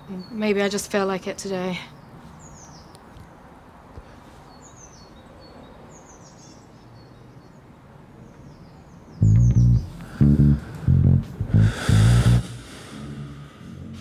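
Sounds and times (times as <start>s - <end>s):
birds chirping: 0.0s - 3.5s, 4.4s - 14.0s
background hush: 9.2s - 14.0s
loud bass-guitar music: 9.2s - 14.0s.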